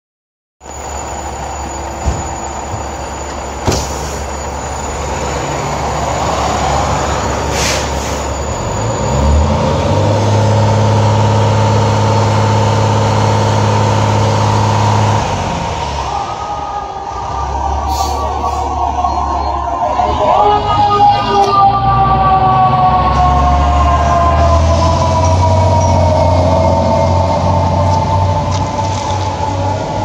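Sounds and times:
diesel engines running: 0.6s - 30.0s
air brakes hissing: 1.7s - 4.8s, 7.4s - 8.5s, 17.8s - 18.8s.

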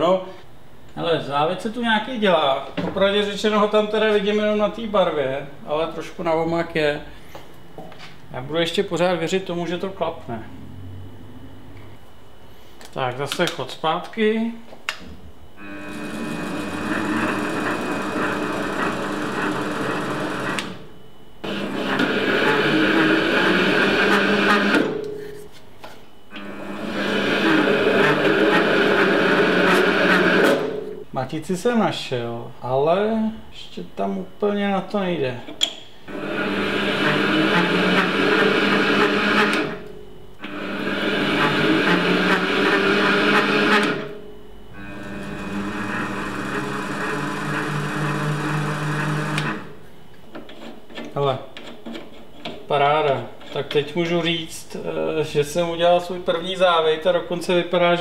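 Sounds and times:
metal lathe motor and gear whine: 15.6s - 20.8s, 21.4s - 25.0s, 26.3s - 30.9s, 36.1s - 49.7s.

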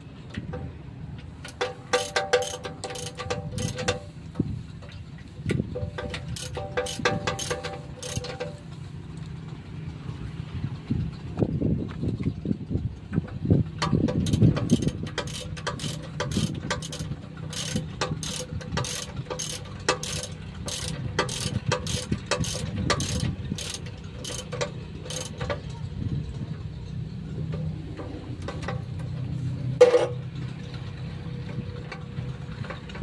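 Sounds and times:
engine running steadily: 0.0s - 33.0s
sharp mechanical clicks: 1.4s - 4.2s, 5.5s - 9.4s, 13.8s - 25.7s.

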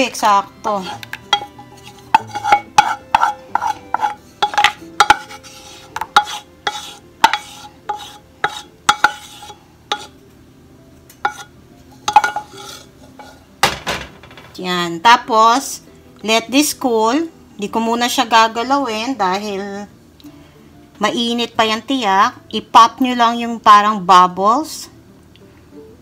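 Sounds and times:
wooden spoon tapping metal saucepan: 0.8s - 5.4s, 6.0s - 10.1s, 11.2s - 11.5s, 12.1s - 12.6s.

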